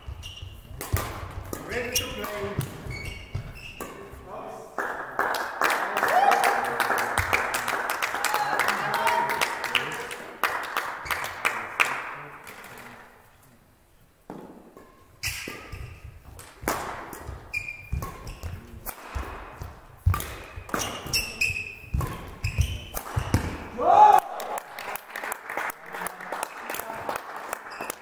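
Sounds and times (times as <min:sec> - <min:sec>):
shoes squealing: 0:00.0 - 0:04.1, 0:14.8 - 0:16.2, 0:17.1 - 0:24.2, 0:27.6 - 0:28.0
racket hitting shuttlecock: 0:00.0 - 0:04.2, 0:14.3 - 0:23.9
applause: 0:04.8 - 0:12.0, 0:24.2 - 0:28.0.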